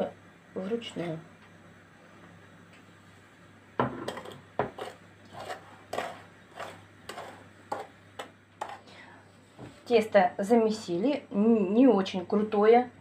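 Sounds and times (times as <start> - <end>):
metal spoon scraping enamel bowl: 4.0 - 7.9, 8.6 - 8.8.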